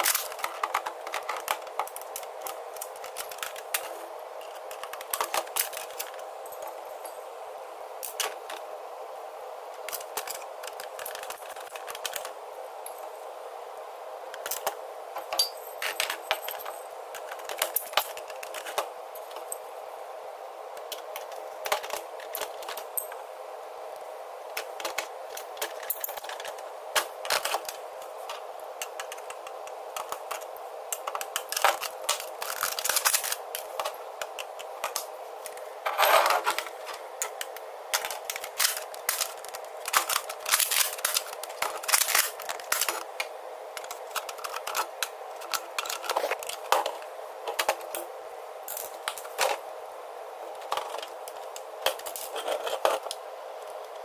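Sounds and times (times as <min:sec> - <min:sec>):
plastic parts clicking and clattering: 0:00.0 - 0:06.2, 0:09.8 - 0:12.4, 0:14.3 - 0:19.5, 0:20.8 - 0:23.1, 0:24.5 - 0:48.0, 0:50.6 - 0:53.2
steady hum: 0:00.0 - 0:54.0.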